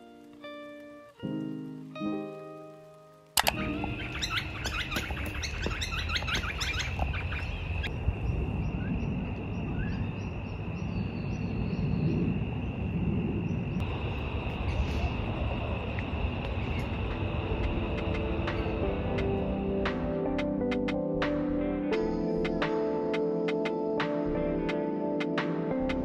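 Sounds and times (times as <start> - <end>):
birds chirping: 3.4 - 15.3, 16.2 - 19.4.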